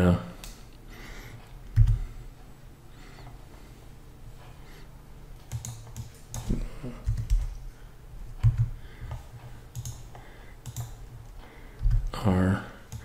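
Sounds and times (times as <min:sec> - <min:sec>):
keyboard and mouse clicks: 0:01.7 - 0:02.0, 0:05.4 - 0:07.6, 0:08.4 - 0:12.2.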